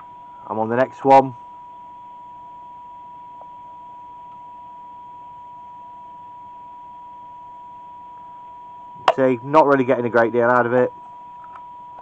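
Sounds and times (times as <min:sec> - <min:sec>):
steady test tone: 0:02.5 - 0:12.0
radio receiver hiss: 0:09.0 - 0:11.6.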